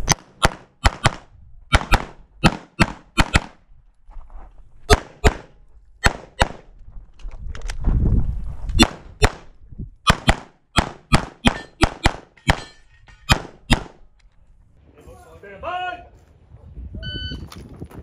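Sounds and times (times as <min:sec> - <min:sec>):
pistol shots: 0:00.0 - 0:03.6, 0:04.9 - 0:06.7, 0:08.8 - 0:09.5, 0:10.1 - 0:14.0.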